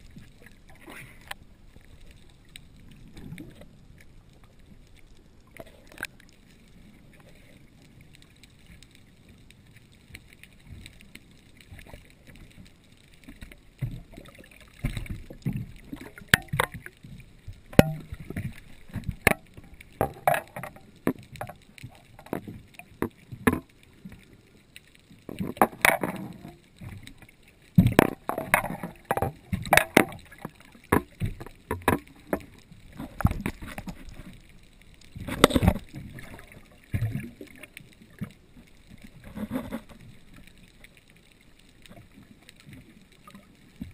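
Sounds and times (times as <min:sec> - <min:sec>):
water splashing: 0:00.0 - 0:43.9
sharp knocks underwater: 0:14.8 - 0:23.7, 0:25.3 - 0:27.0, 0:27.8 - 0:34.3, 0:35.2 - 0:38.3.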